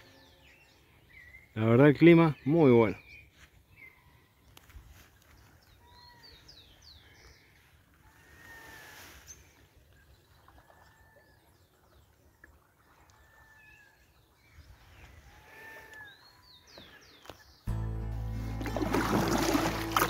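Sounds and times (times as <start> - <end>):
paddle splashing in water: 18.4 - 20.0.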